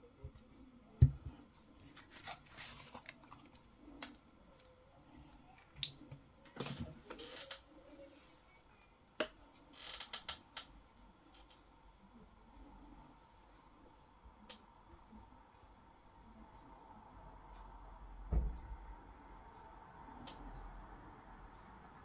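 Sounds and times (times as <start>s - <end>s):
scraping and rubbing: 1.8s - 3.5s.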